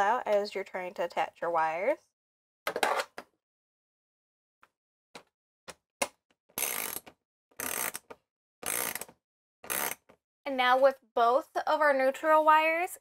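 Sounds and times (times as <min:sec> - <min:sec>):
ratchet wrench ratcheting: 0:06.6 - 0:10.0.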